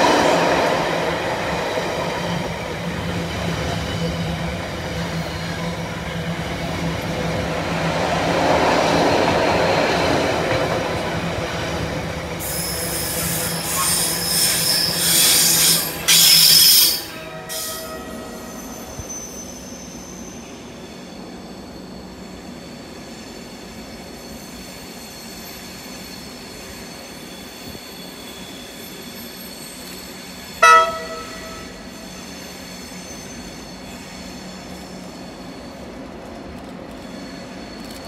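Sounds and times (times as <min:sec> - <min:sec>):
electric train moving slowly: 0:00.0 - 0:38.0
train horn blast: 0:17.1 - 0:18.6, 0:30.6 - 0:31.9.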